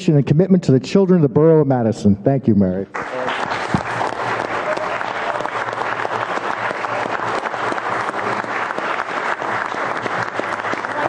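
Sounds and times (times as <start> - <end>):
crowd clapping: 2.9 - 11.0.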